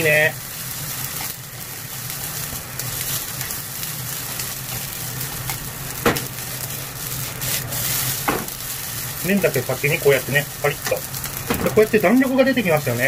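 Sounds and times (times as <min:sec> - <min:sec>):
noodles sizzling in a frying pan: 0:00.0 - 0:13.0
chopsticks knocking pan: 0:08.3 - 0:08.6.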